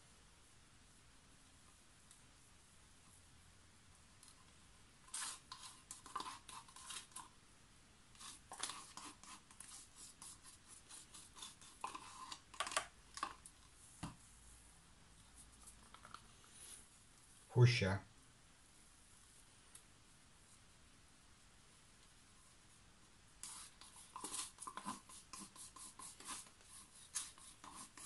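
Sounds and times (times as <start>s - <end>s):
stick scraping paint in cups: 5.0s - 7.3s, 8.1s - 13.6s, 23.4s - 28.0s
plastic cups being handled: 5.1s - 7.3s, 8.2s - 9.7s, 11.2s - 14.2s, 23.4s - 28.0s.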